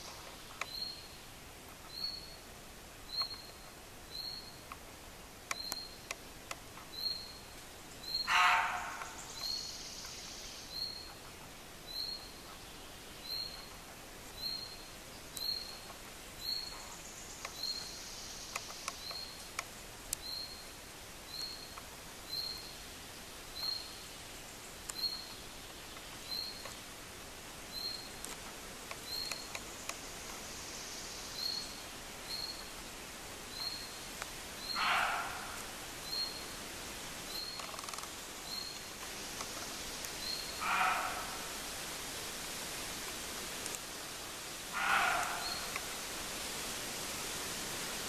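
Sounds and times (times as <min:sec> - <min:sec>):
deer barking: 0:08.3 - 0:09.2, 0:34.7 - 0:35.7, 0:40.6 - 0:41.6, 0:44.7 - 0:45.8.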